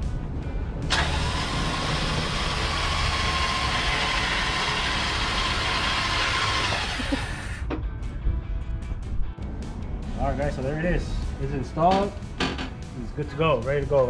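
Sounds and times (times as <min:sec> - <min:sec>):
low engine rumble: 0:00.0 - 0:13.2
electric winch whining: 0:00.9 - 0:07.8.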